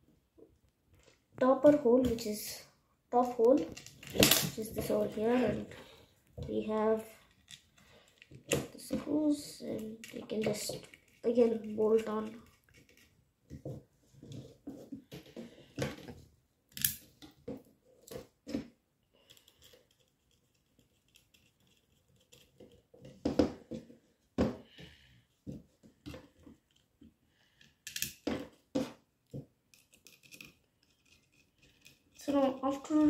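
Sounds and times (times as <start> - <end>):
small clicks and taps of screws: 19.2 - 22.8, 26.1 - 28.4, 29.2 - 32.2.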